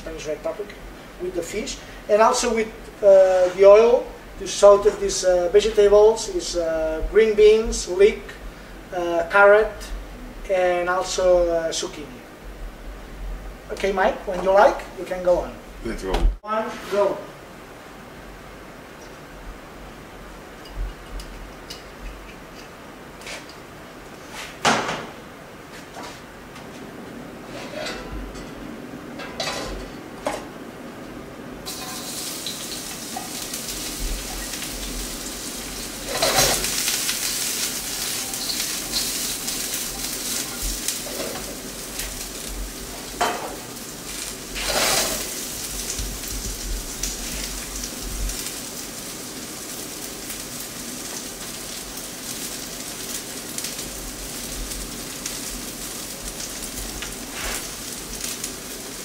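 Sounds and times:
vegetables sizzling in oil: 31.6 - 59.0.

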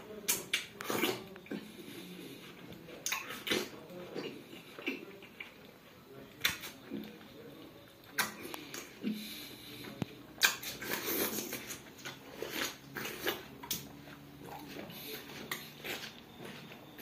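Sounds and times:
eating watermelon: 0.0 - 17.0
wet crunches and smacks: 10.4 - 17.0.

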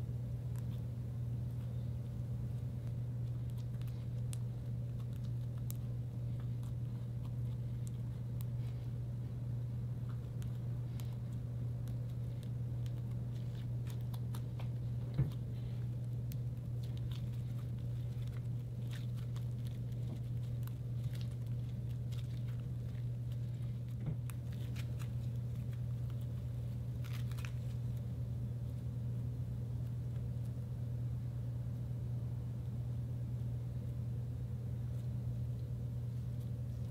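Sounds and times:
steady low hum: 0.0 - 36.9
slime crackling and squishing: 2.5 - 28.0.

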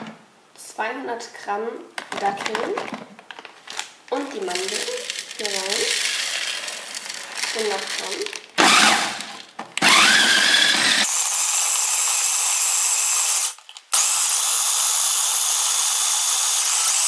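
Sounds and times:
food processor motor whining: 8.6 - 17.0.

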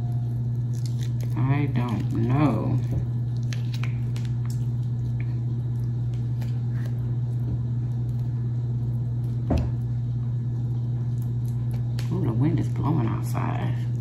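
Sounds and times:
wet squishes of mango peeled: 0.0 - 9.4
low hum: 0.0 - 14.0.

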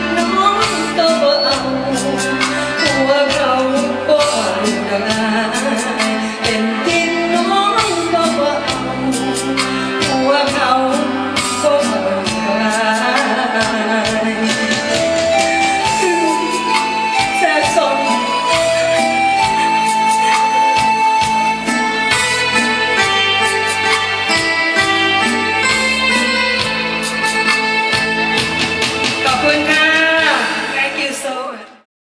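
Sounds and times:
woman singing into a microphone: 0.0 - 18.7
keyboard accompaniment with beat: 0.0 - 31.4.

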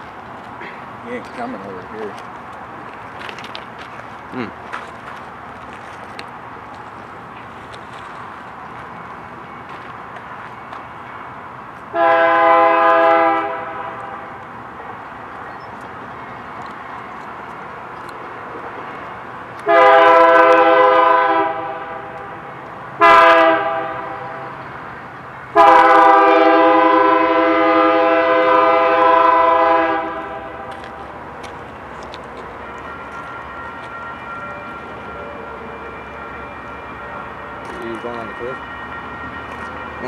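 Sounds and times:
train rumble: 0.0 - 40.0
train air horn blasts: 11.9 - 14.4, 19.6 - 22.4, 23.0 - 24.5, 25.5 - 30.7.

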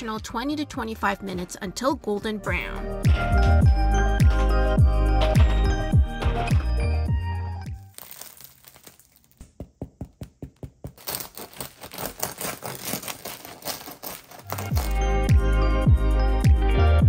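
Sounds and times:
music: 0.0 - 8.0, 14.5 - 17.0
bread crust crackling: 7.8 - 15.0.

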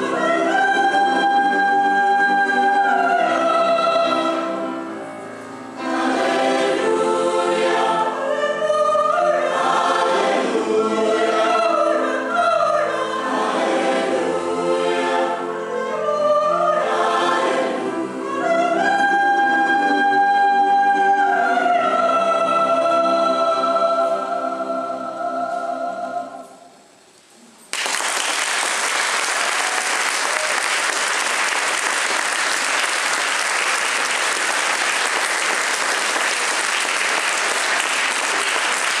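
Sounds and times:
choir holding a chord: 0.0 - 26.6
audience applause: 27.7 - 39.0.

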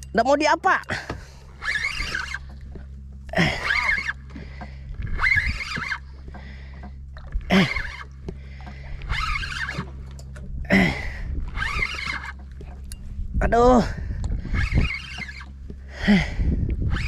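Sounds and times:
boat engine running: 0.0 - 17.0
person grunting and breathing: 10.7 - 11.3, 15.9 - 16.5.

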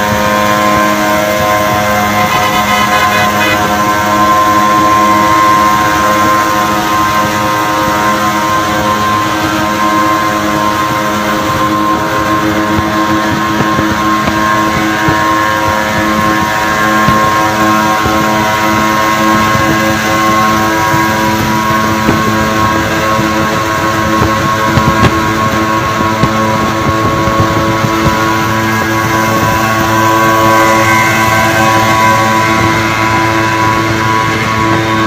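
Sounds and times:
highway vehicle engine and road noise: 0.0 - 35.0
music with sustained tones: 0.0 - 35.0.

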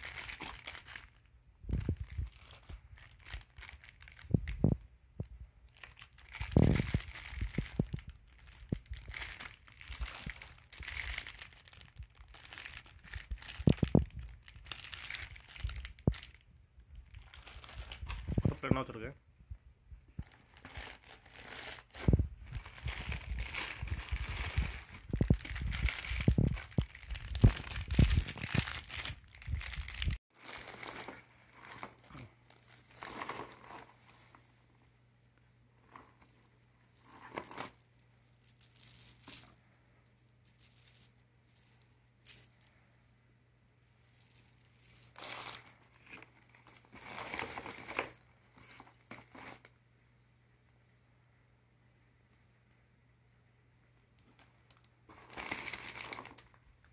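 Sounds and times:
plastic and cardboard crinkling: 0.0 - 4.8, 5.7 - 19.0, 20.1 - 34.6, 35.8 - 39.6, 44.0 - 49.7, 54.2 - 56.9.

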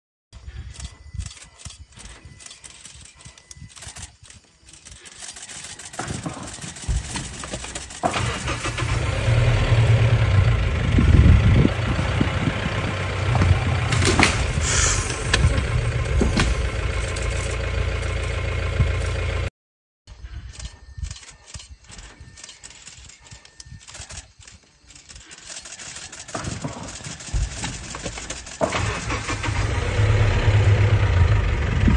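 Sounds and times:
vehicle engine starting and running: 5.3 - 19.5, 25.7 - 31.9.

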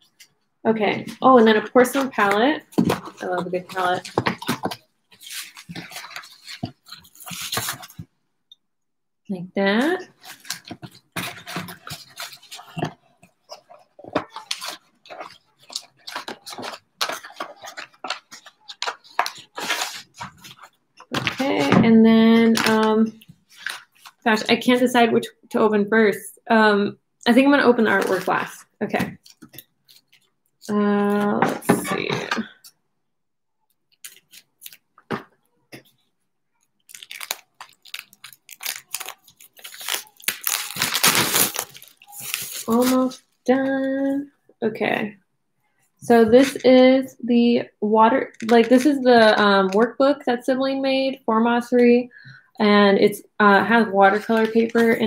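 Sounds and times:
plastic packaging rustling: 1.0 - 8.1, 10.0 - 21.8, 22.4 - 24.3, 34.0 - 43.4
plastic wrap crinkling: 1.0 - 8.1, 9.8 - 21.8, 33.9 - 43.4.

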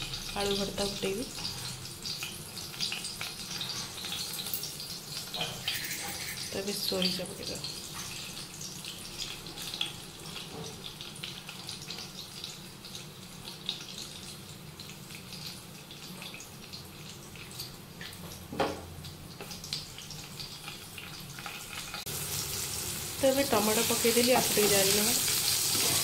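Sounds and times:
seeds sizzling in hot oil: 0.0 - 18.4, 19.0 - 26.0.

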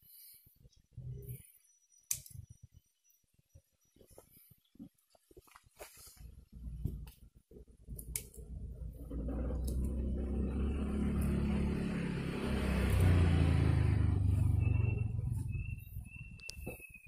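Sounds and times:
vehicle engine rumble passing: 8.4 - 16.4.

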